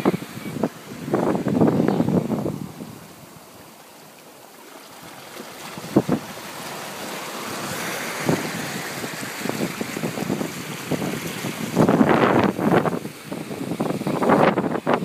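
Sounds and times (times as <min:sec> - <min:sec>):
wind buffeting microphone: 0:00.0 - 0:03.6, 0:05.6 - 0:15.0
surf washing over rocks: 0:00.0 - 0:15.0.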